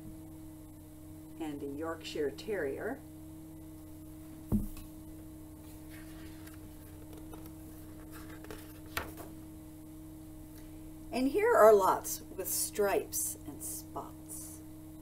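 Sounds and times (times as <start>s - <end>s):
low room hum: 0.0s - 15.0s
soft bump: 4.5s - 4.8s
book pages rustling: 5.6s - 9.3s.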